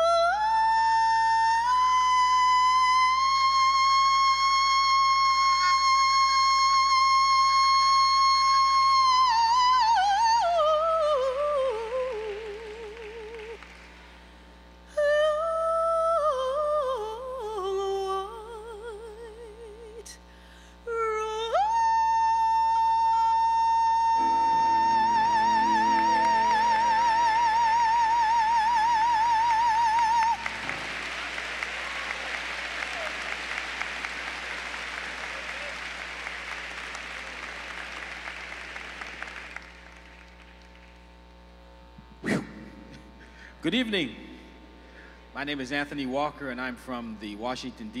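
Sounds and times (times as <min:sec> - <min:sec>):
woman singing soprano: 0:00.0 - 0:13.6, 0:14.9 - 0:20.2, 0:20.9 - 0:30.6
applause: 0:12.0 - 0:14.2, 0:29.4 - 0:41.1.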